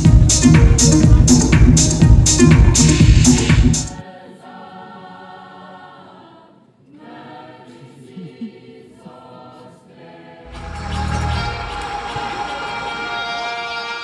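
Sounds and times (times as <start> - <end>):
choir singing unaccompanied: 2.8 - 14.0.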